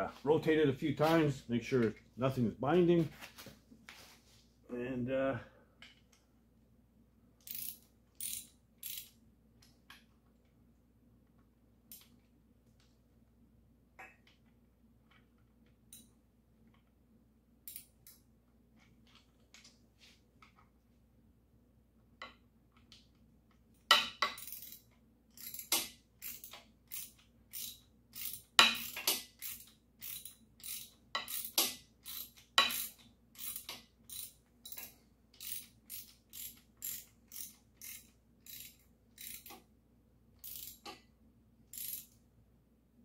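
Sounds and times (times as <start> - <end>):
hand ratchet clicking: 7.4 - 9.1, 24.2 - 39.6, 40.4 - 41.0, 41.7 - 42.2.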